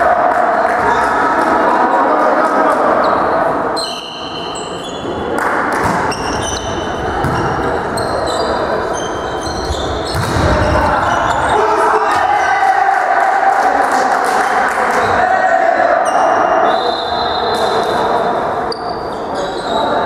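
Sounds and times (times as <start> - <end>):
sneakers squeaking on gym floor: 3.0 - 11.7, 18.6 - 20.0.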